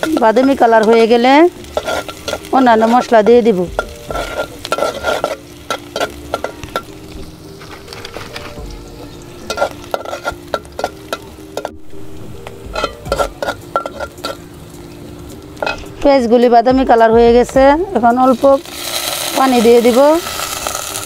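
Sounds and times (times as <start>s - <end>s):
spoon scraping a pot: 0.0s - 3.2s, 3.8s - 7.0s, 9.4s - 11.8s, 12.7s - 14.4s
vegetables sizzling in hot oil: 0.0s - 16.2s, 17.9s - 21.0s.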